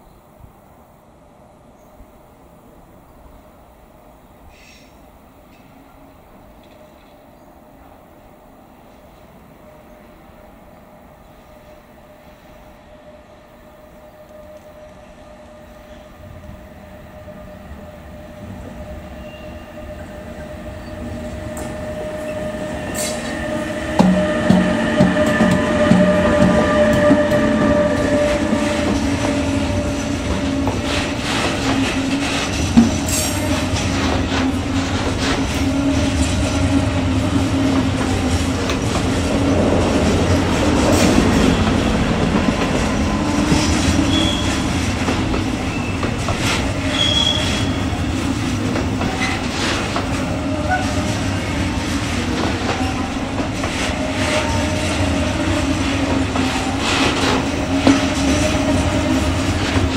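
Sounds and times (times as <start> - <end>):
freight train passing: 0.0 - 59.9
train clatter and knocks: 18.2 - 59.9.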